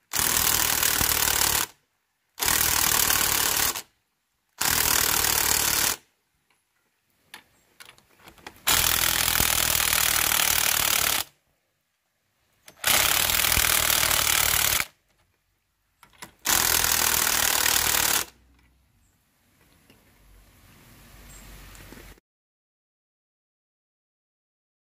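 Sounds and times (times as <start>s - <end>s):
impact driver hammering: 8.7s - 11.2s, 12.8s - 14.9s.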